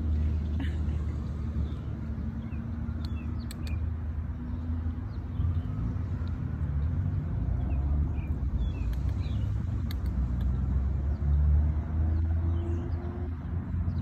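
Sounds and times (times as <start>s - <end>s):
small birds chirping: 0.0s - 14.0s
light clicks: 8.8s - 10.6s.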